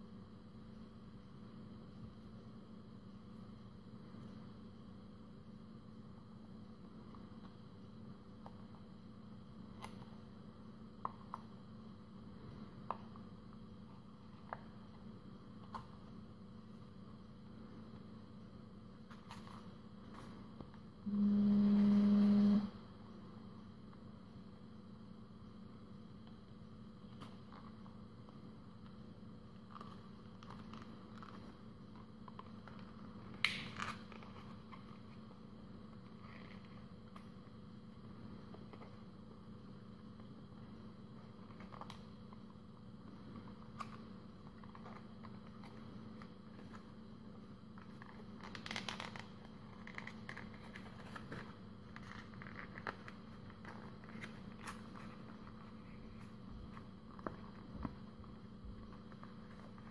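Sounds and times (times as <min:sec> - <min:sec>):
faint steady hum: 0:00.0 - 0:59.9
paper rustling and crinkling: 0:47.8 - 0:59.9.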